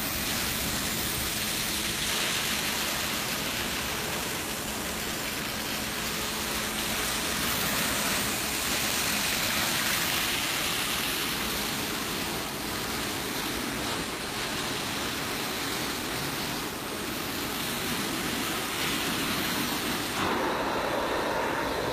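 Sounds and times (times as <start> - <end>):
carpet extraction vacuum running: 16.0 - 21.9.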